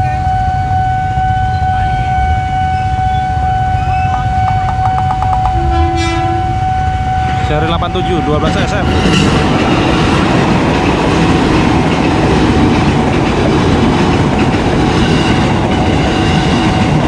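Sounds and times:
train wheels running over rails: 8.4s - 17.0s.

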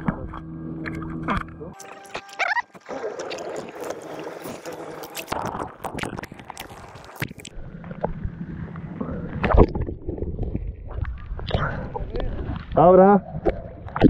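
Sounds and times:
water lapping and splashing: 2.1s - 14.0s
muffled underwater rumble: 2.5s - 14.0s
droplets crackling on camera: 2.8s - 7.6s.

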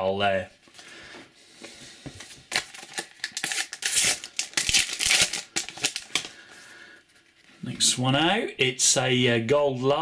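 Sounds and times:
packet wrapper crinkling and tearing: 2.4s - 6.4s.

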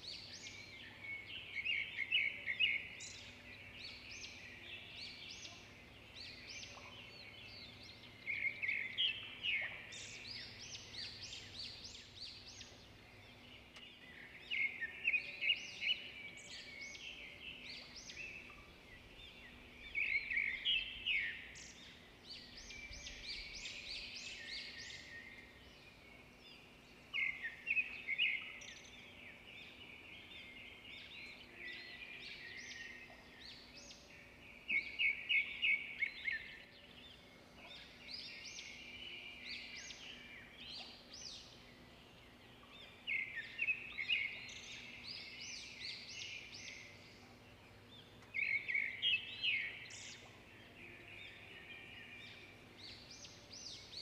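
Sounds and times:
faint steady hum: 0.0s - 54.0s
small birds chirping: 0.0s - 54.0s.

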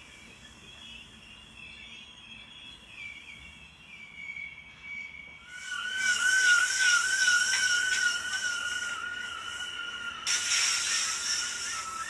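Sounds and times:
thin wavering high tones: 5.0s - 12.0s
train wheels squealing on rail: 5.3s - 12.0s.

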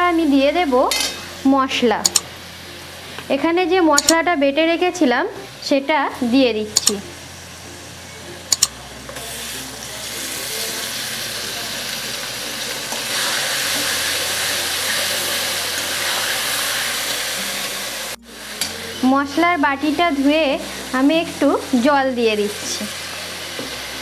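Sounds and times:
steel bowl clinking against pan: 0.9s - 1.3s
spice paste sizzling in oil: 9.2s - 24.0s.

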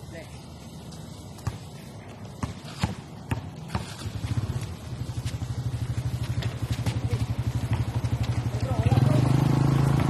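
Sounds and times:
basketball bouncing on concrete: 1.3s - 9.0s.

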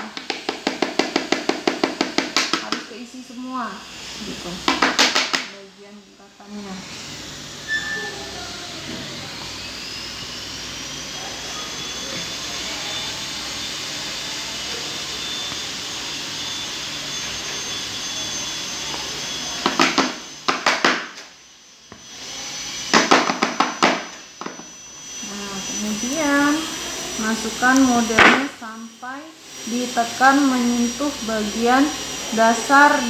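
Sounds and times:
electric machine whining: 0.0s - 33.0s.

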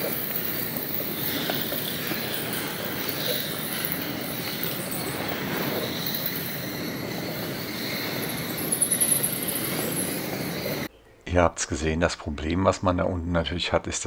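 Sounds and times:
bat wings fluttering: 0.0s - 10.9s
bats squeaking: 0.0s - 10.9s.

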